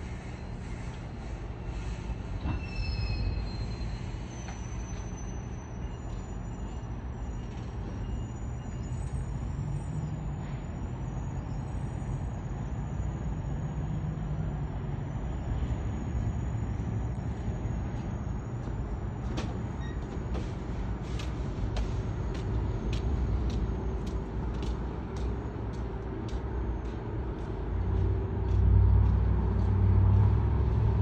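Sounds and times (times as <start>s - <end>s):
high-pitched squeal: 0.0s - 18.6s
train rumbling: 0.0s - 31.0s.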